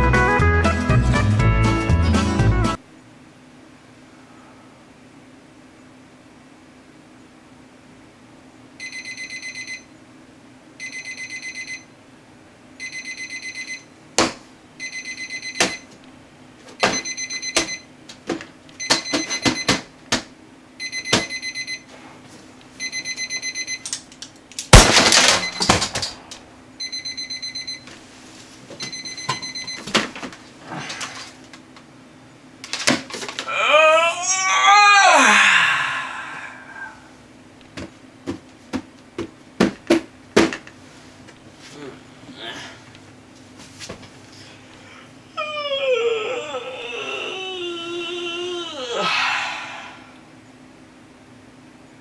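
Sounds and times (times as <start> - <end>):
steady low hum: 2.8 - 45.7, 46.4 - 52.0
alarm clock beeping: 8.8 - 9.9, 10.8 - 11.8, 12.8 - 13.9, 14.8 - 15.9, 16.8 - 17.9, 18.8 - 19.7, 20.8 - 21.8, 22.8 - 23.9, 26.8 - 27.9, 28.8 - 29.8.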